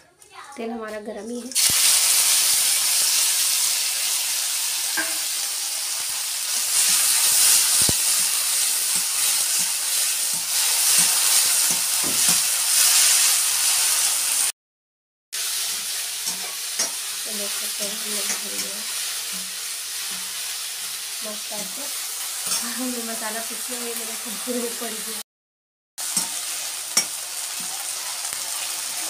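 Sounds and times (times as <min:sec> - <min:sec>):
prawns sizzling in hot oil: 0:01.4 - 0:14.5, 0:15.4 - 0:25.2, 0:26.0 - 0:29.0
metal spatula stirring: 0:06.8 - 0:12.9, 0:15.7 - 0:17.0.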